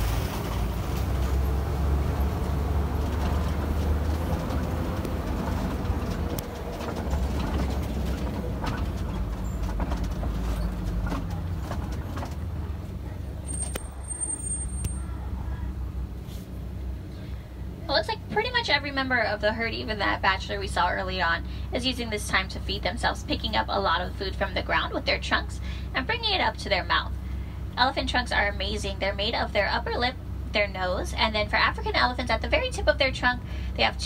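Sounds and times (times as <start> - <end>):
truck engine low rumble: 0.0 - 34.0
vehicle body rattles and knocks: 2.7 - 12.9.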